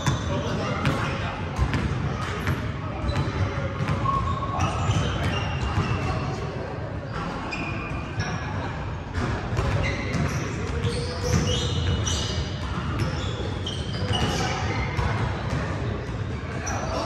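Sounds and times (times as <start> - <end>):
sneakers squeaking: 0.0 - 17.0
basketballs bouncing on hardwood: 0.8 - 2.3.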